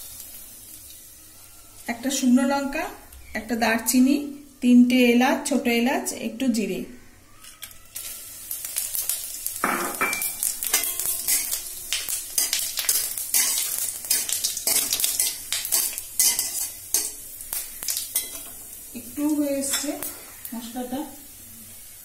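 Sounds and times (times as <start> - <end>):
spices sizzling in hot oil: 0.0 - 6.7, 7.3 - 22.0
metal spatula scraping a pan: 10.0 - 17.2, 17.8 - 18.6.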